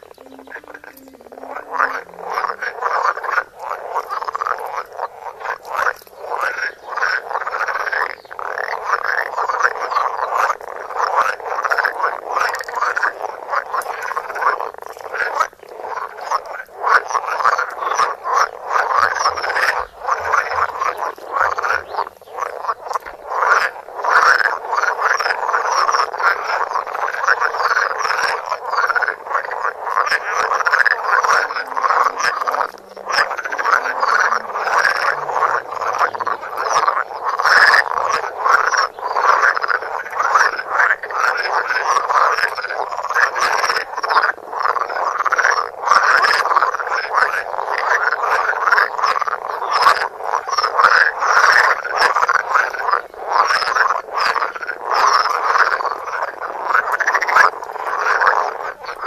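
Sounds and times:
frogs croaking in chorus: 0:00.0 - 0:59.0.

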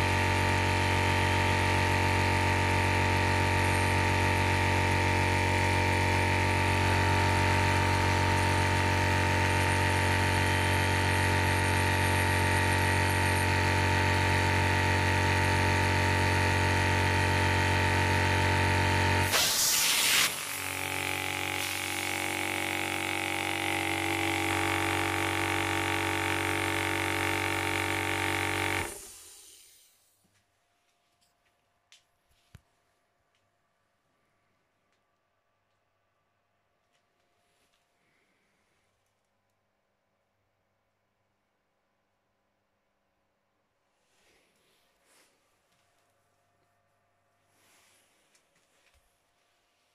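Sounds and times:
compressor winding down: 0:00.0 - 0:30.2
air compressor humming: 0:00.0 - 0:30.4
loud air hiss: 0:19.2 - 0:20.6, 0:28.9 - 0:30.1.

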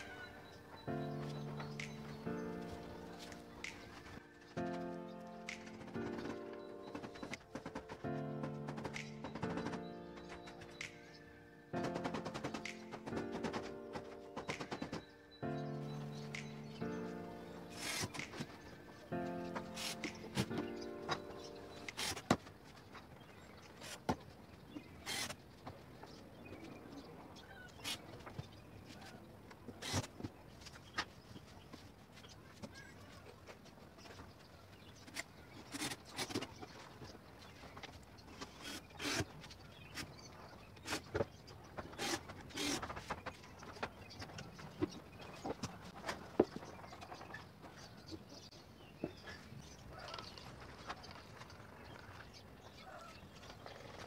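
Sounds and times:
background music: 0:00.0 - 0:22.4.

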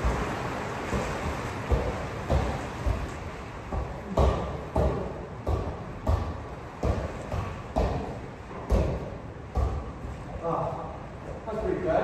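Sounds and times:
football kicks echoing: 0:00.9 - 0:10.1.

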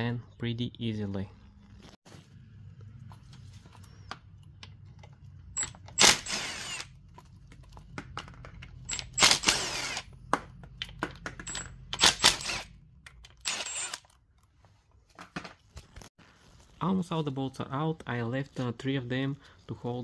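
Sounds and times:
cordless power tool bursts: 0:05.9 - 0:06.9, 0:08.9 - 0:10.1, 0:12.0 - 0:12.7, 0:13.4 - 0:14.0.

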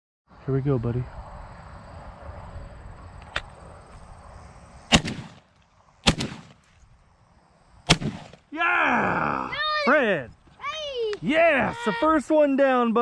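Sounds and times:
shotgun shots: 0:04.9 - 0:06.6, 0:07.9 - 0:08.5.

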